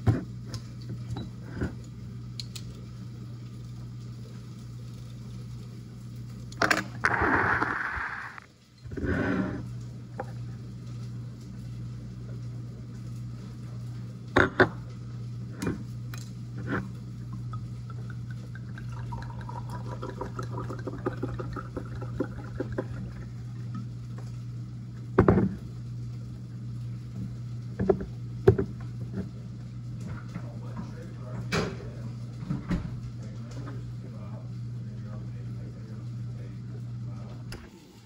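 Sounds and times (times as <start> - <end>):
wine pouring into glass: 17.4 - 23.8.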